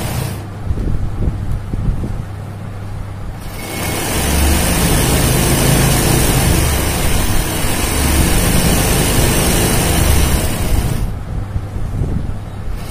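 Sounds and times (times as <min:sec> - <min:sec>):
sewing machine running: 0:00.0 - 0:00.5, 0:03.4 - 0:11.2.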